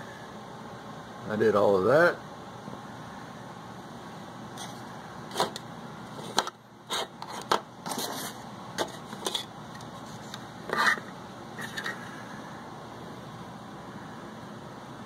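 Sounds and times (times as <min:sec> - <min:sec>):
steady background noise: 0:00.0 - 0:15.0
scrape or rustle: 0:06.2 - 0:12.0.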